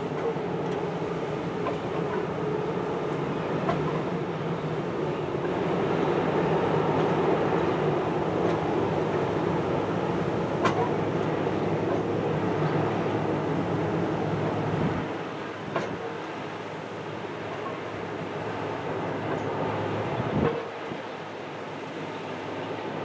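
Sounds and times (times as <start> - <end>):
ship engines rumbling: 0.0 - 23.0.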